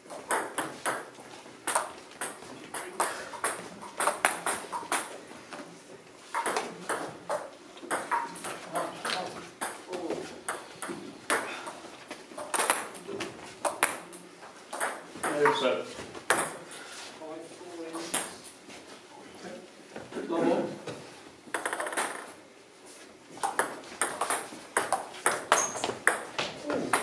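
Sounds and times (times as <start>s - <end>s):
table tennis balls clicking: 0.1s - 5.2s, 6.2s - 9.8s, 10.4s - 13.0s, 13.6s - 15.6s, 21.5s - 22.3s, 23.4s - 27.0s.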